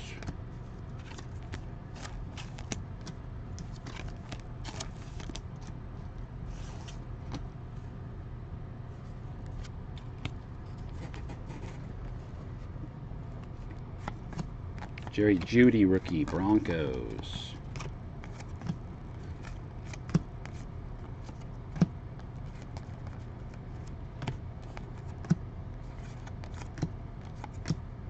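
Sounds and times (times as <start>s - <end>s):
trading cards clicking and rustling: 0.0s - 5.7s, 13.4s - 27.8s
steady low hum: 0.0s - 28.0s.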